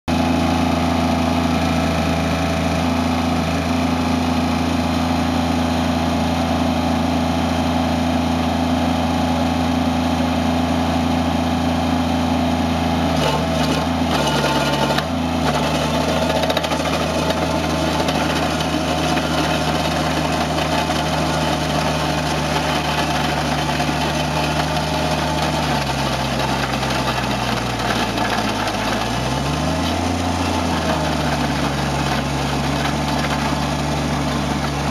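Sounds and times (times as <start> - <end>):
loader engine running: 0.1 - 34.9
rotor churning through gravel: 13.1 - 34.9.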